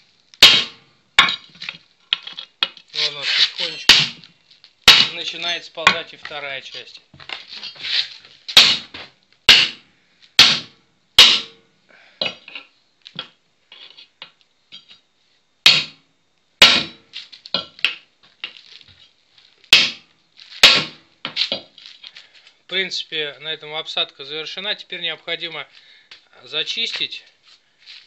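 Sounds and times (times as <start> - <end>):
sledgehammer striking steel: 0.4 - 1.5, 3.6 - 4.2, 4.9 - 6.1, 8.6 - 11.6, 15.6 - 16.0, 16.6 - 18.0, 19.7 - 21.7
light knocks and scrapes: 7.2 - 9.1.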